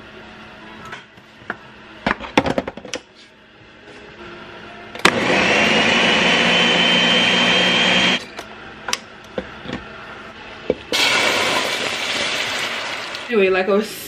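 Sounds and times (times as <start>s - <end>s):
blender whine: 5.0s - 8.3s, 10.9s - 13.3s.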